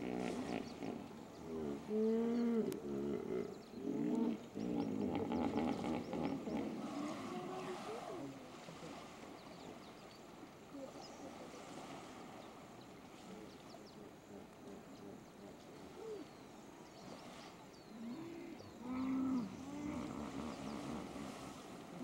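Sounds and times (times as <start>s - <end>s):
small birds chirping: 9.2s - 11.6s.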